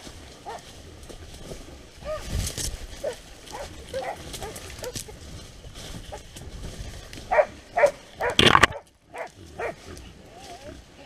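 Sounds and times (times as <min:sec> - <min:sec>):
hound baying: 0:00.4 - 0:00.8, 0:02.0 - 0:02.3, 0:02.9 - 0:05.2, 0:07.3 - 0:10.7.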